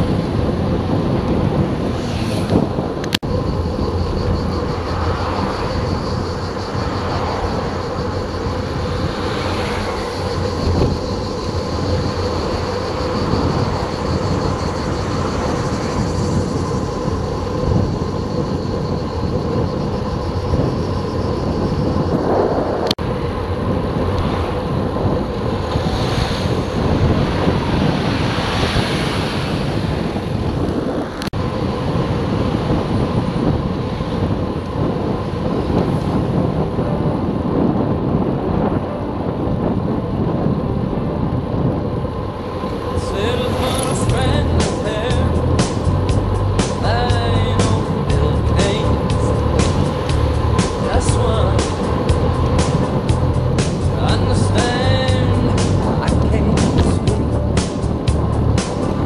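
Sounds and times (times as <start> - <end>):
road noise: 0.0 - 59.0
wind buffeting microphone: 0.0 - 59.0.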